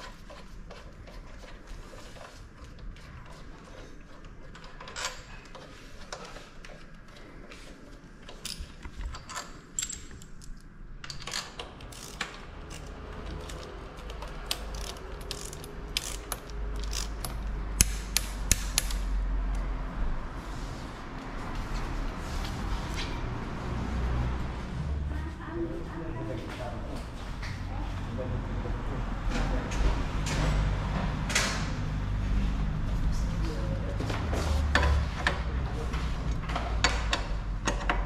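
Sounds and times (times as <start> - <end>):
metal tools clicking and clinking: 8.3 - 17.5.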